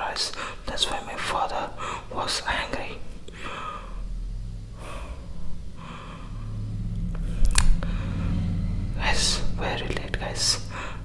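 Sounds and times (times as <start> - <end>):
low electrical hum: 0.0 - 11.0
man breathing: 0.3 - 0.7, 1.6 - 11.0.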